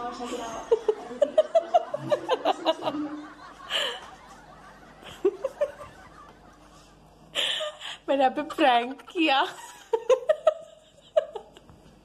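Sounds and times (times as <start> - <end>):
stifled laughter: 0.4 - 8.0.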